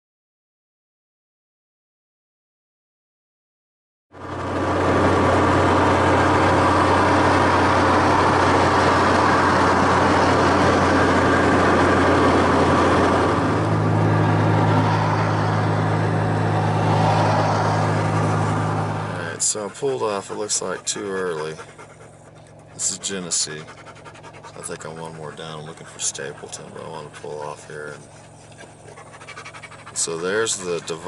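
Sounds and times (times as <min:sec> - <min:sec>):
engine and tyre drone: 0:04.2 - 0:31.0
rushing wind: 0:04.3 - 0:22.9.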